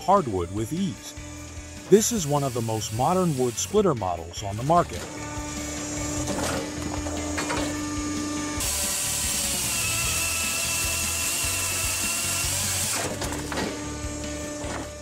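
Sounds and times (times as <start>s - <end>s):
chainsaw cutting through log: 0.5s - 4.0s, 4.6s - 15.0s
machine running: 4.8s - 15.0s.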